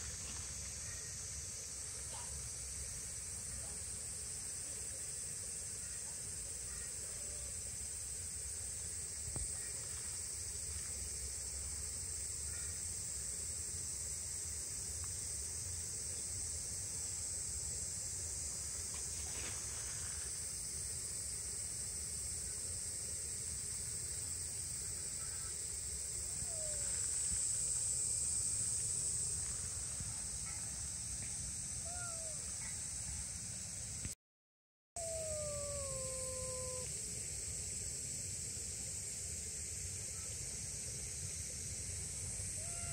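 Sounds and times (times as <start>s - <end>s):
insects droning: 0.0s - 34.2s, 35.0s - 42.9s
steady high hiss: 0.0s - 34.2s, 35.0s - 42.9s
kitten mewing: 31.8s - 32.4s, 35.0s - 36.9s.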